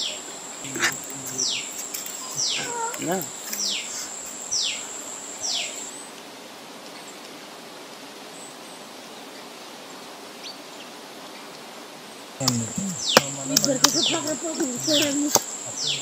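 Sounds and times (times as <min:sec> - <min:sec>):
high steady buzz: 0:00.0 - 0:06.2, 0:12.4 - 0:16.0
background hiss: 0:00.0 - 0:16.0.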